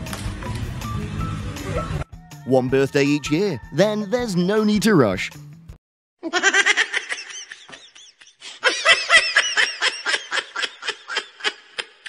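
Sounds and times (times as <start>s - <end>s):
high-pitched laughter: 6.2s - 12.0s.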